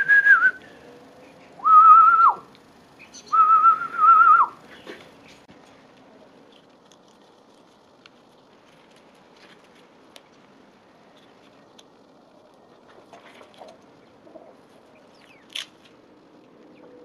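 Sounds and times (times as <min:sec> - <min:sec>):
person whistling: 0:00.0 - 0:00.6, 0:01.6 - 0:02.4, 0:03.3 - 0:04.6.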